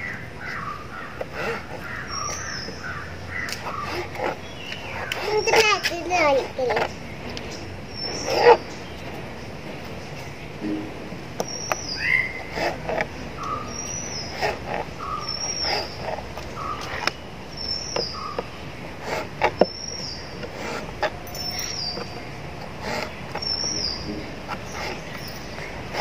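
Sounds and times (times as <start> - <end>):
bird chirping: 0.0 - 26.0.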